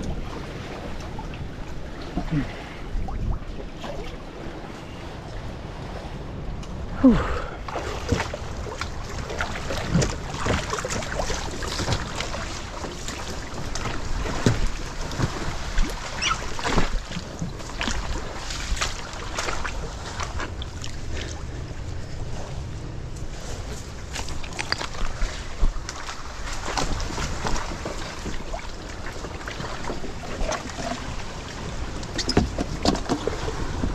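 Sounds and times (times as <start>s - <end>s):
wind rumble on microphone: 0.0s - 33.9s
branches crackling and scraping: 23.2s - 27.9s.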